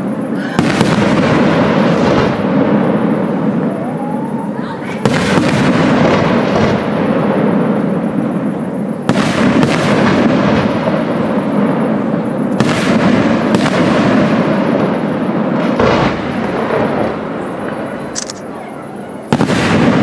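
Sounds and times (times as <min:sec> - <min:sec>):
dense rumble of fireworks: 0:00.0 - 0:20.0
firework shells bursting: 0:17.6 - 0:18.5.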